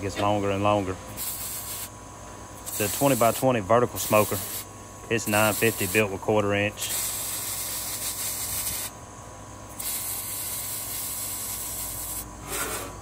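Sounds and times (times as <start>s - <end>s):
welding arc hissing and crackling: 1.1s - 1.9s, 2.6s - 6.2s, 6.8s - 8.9s, 9.8s - 12.7s.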